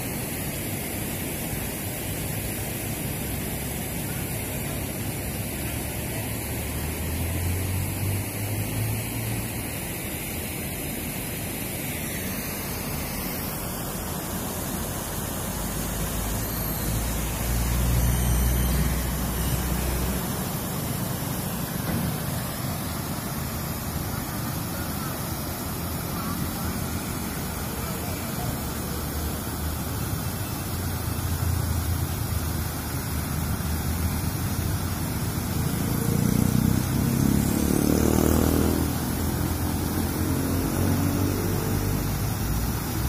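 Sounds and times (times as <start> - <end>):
river water rushing over weir: 0.0 - 35.9
road traffic passing: 0.0 - 43.0.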